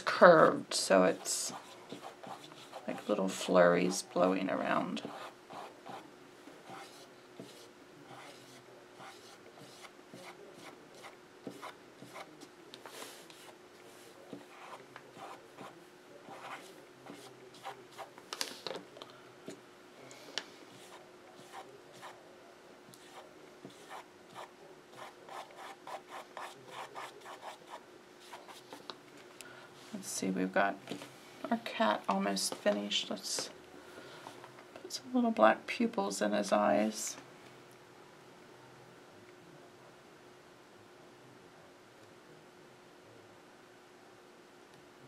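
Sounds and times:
brush scratching on canvas: 1.1 - 4.1, 6.6 - 18.1, 20.7 - 22.2, 23.0 - 28.8.

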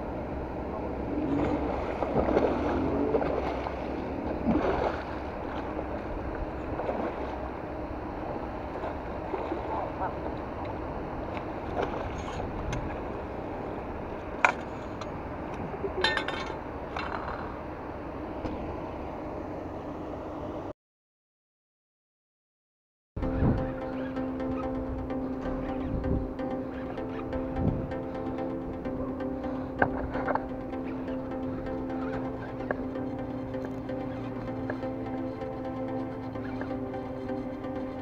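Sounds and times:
fish thrashing and splashing: 1.4 - 5.8.

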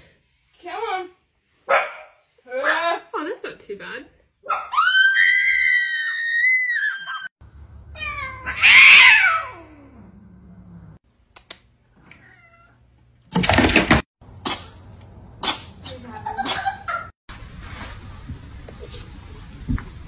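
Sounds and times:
cats yowling: 4.5 - 7.3, 8.0 - 10.2.

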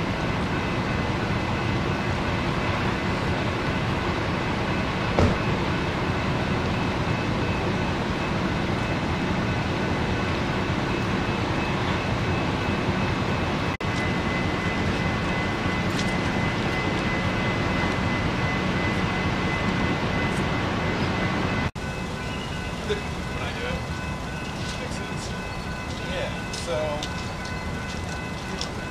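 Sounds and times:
freight train: 0.0 - 28.9
heavy vehicle engines rumbling: 0.0 - 28.9.

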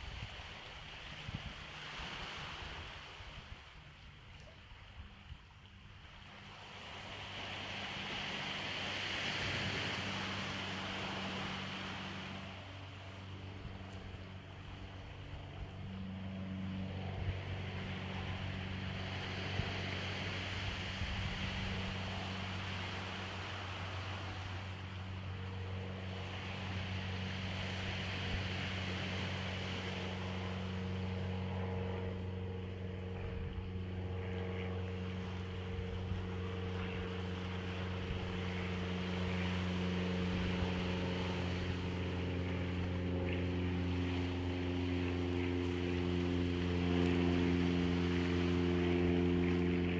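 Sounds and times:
constant noise wash: 0.0 - 49.9
engine humming: 0.0 - 49.9.

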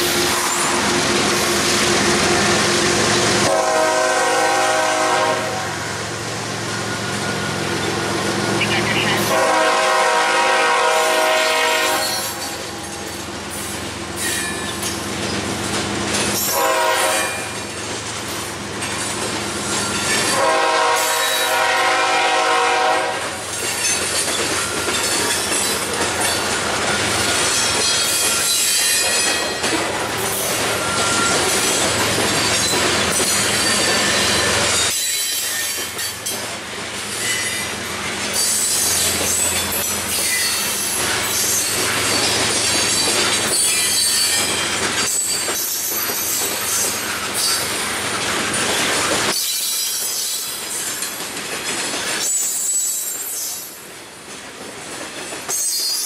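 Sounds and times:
locomotive air horn: 3.4 - 5.8, 8.6 - 12.5, 16.5 - 17.5, 20.3 - 23.4
wheels clicking over rail joints: 12.2 - 16.6, 23.4 - 37.6, 38.2 - 56.0
wheels squealing: 23.5 - 36.3, 37.1 - 47.8.

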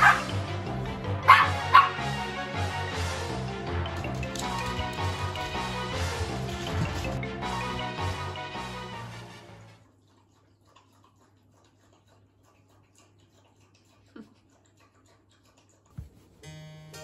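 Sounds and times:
background music: 0.0 - 9.8, 16.4 - 17.0.

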